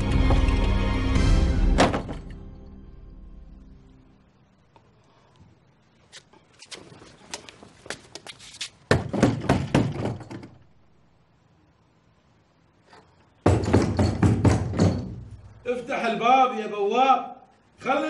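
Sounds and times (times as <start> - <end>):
knocking on wooden door: 13.4 - 15.3.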